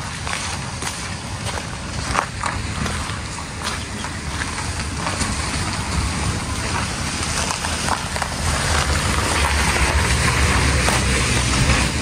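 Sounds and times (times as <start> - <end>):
vehicle driving past: 5.0 - 12.0.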